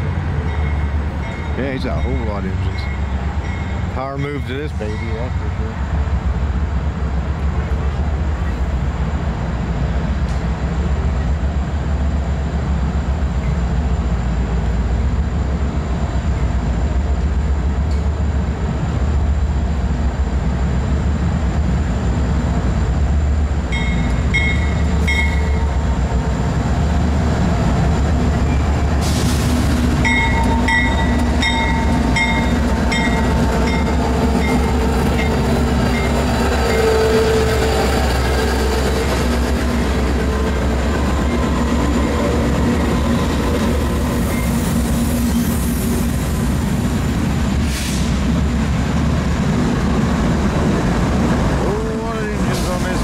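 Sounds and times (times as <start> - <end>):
diesel locomotive engines rumbling: 0.0 - 53.0.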